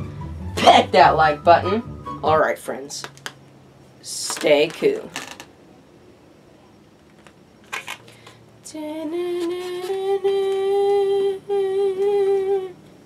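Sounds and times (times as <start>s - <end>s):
person singing a long note: 8.6s - 12.9s.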